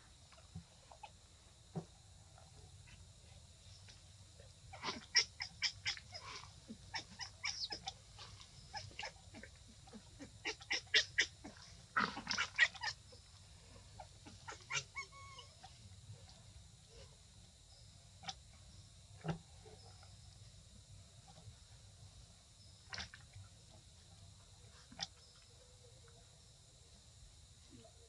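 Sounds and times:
baby monkey squealing: 14.4s - 15.5s.

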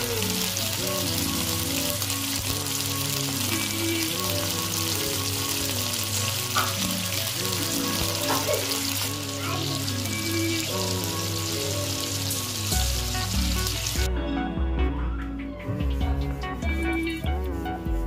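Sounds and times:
food sizzling in hot oil: 0.0s - 14.1s
background music: 0.0s - 18.0s.

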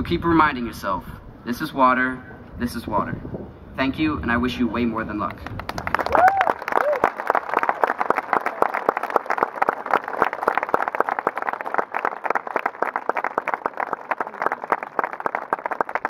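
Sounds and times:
crowd applauding: 5.3s - 16.0s.

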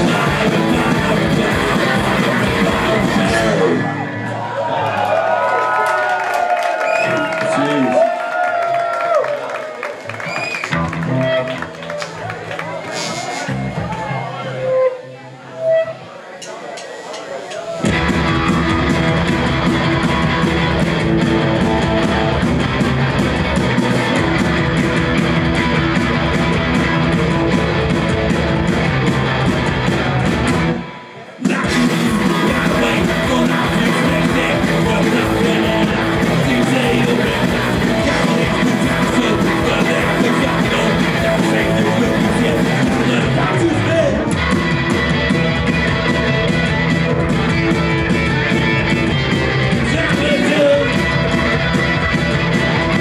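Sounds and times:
punk rock band playing live: 0.0s - 4.5s, 17.7s - 53.0s
electric guitar: 0.0s - 5.1s, 10.2s - 14.9s, 17.8s - 53.0s.

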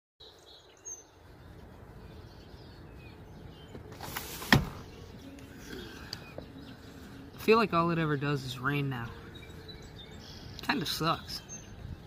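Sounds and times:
window sliding open: 3.8s - 5.1s.

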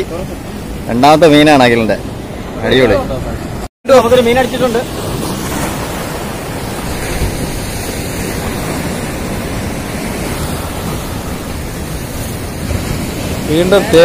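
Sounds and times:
surf washing against rocks: 0.0s - 14.0s
wind on microphone: 4.8s - 14.0s.

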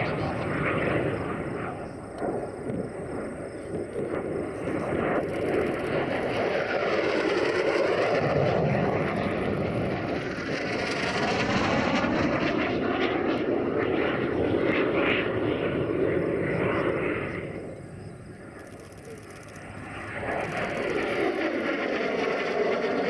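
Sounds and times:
jet fighter roaring past: 0.0s - 23.0s.

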